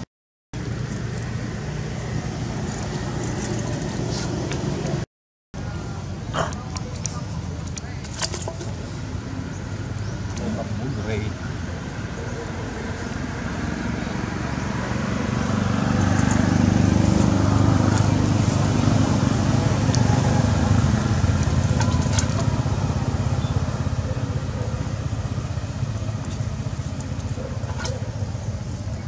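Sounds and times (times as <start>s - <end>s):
motor engine droning: 8.5s - 29.0s.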